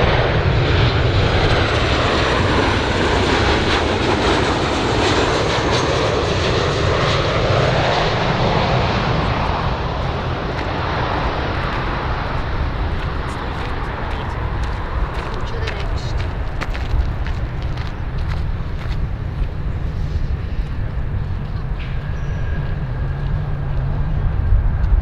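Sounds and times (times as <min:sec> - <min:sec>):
jet plane rushing noise: 0:00.0 - 0:25.0
faint high jet whine: 0:17.4 - 0:25.0.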